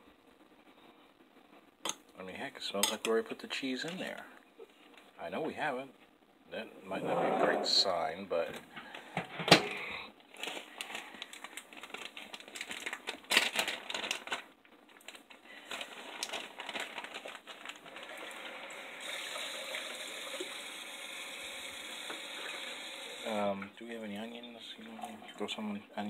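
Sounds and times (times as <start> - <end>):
plastic bag crinkling: 10.2 - 18.8.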